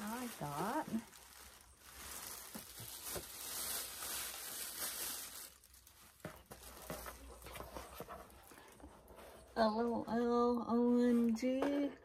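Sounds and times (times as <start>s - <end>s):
plastic bag rustling: 0.0s - 10.0s.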